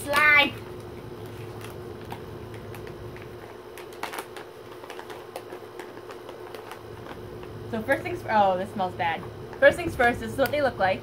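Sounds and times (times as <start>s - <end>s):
plastic bag crackling: 0.0s - 8.1s
faint steady hum: 0.0s - 11.0s.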